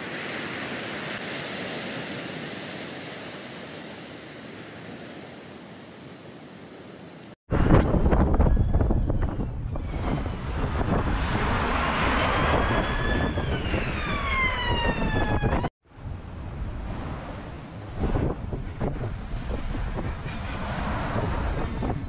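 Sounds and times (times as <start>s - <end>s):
wind: 0.0s - 22.0s
emergency vehicle siren wailing: 8.1s - 9.8s, 11.8s - 15.7s.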